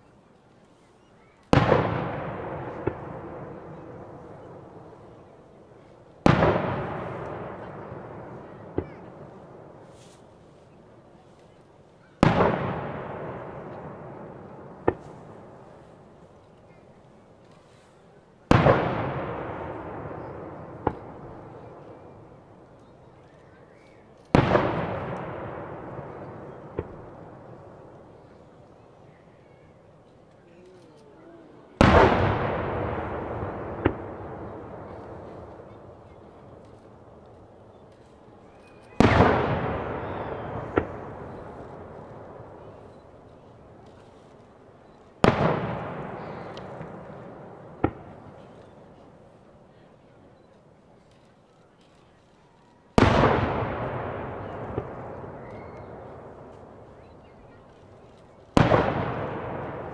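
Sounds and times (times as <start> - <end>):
sharp firework crack: 1.3 - 10.7, 12.0 - 16.8, 17.4 - 28.5, 31.8 - 49.6, 51.0 - 59.9
firework shell booming: 1.5 - 5.2, 31.8 - 38.2, 39.0 - 44.2, 45.2 - 49.2, 52.9 - 59.9.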